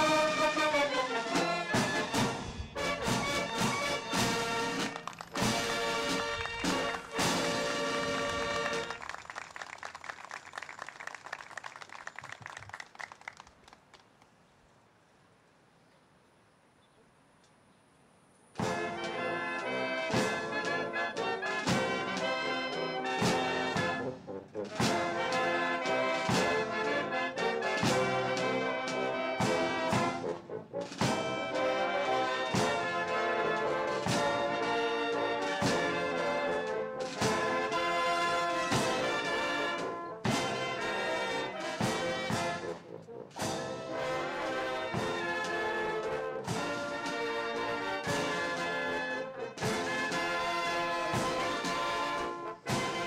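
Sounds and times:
brass band chord: 0.0s - 9.0s, 18.6s - 53.0s
crowd applause: 4.3s - 14.3s.

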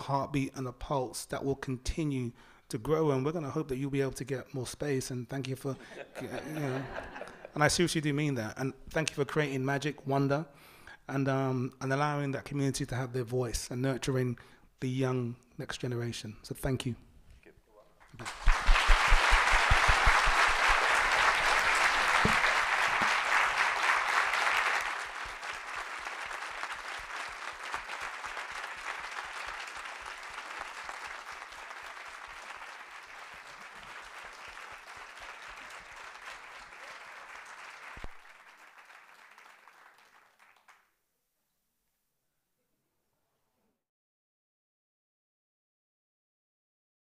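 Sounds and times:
audience applauding: 18.1s - 40.8s.

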